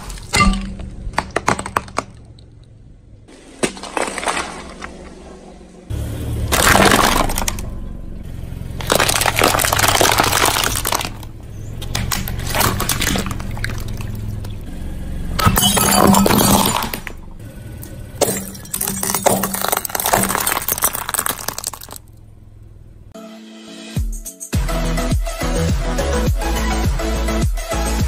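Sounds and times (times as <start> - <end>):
car tyre rolling: 0.0 - 23.2
plastic toys cracking and crunching: 6.5 - 7.7, 8.8 - 14.1, 18.3 - 22.0.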